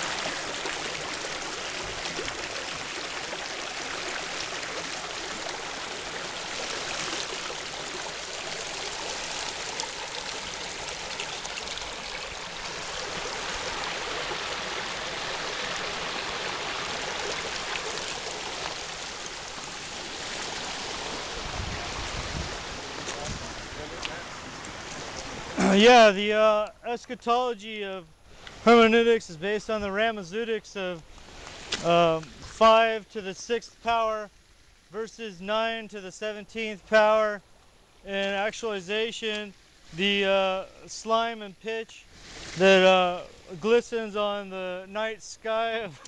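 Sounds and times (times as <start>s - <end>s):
creek water trickling over stones: 0.0s - 25.6s, 28.2s - 28.7s, 30.3s - 33.0s, 34.2s - 35.0s, 42.0s - 43.7s.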